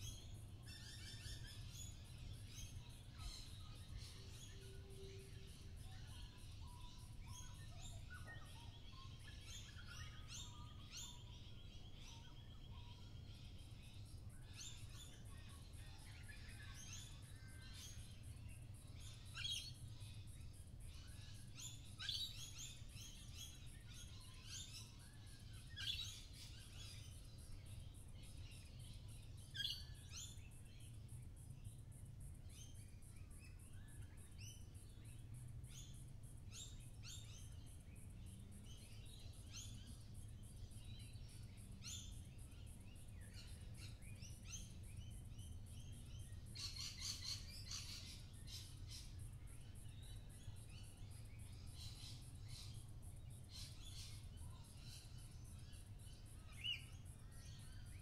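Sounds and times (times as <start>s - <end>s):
birds chirping and calling: 42.9s - 49.2s.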